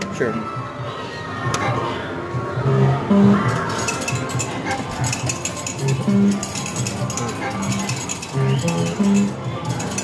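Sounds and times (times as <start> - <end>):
clinking and clicking: 3.5 - 10.0
electronic beeping jingle: 5.8 - 6.6, 7.5 - 9.4.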